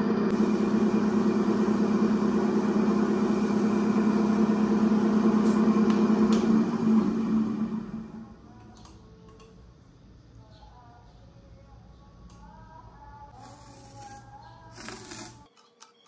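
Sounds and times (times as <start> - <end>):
wood lathe motor humming: 0.0 - 8.3.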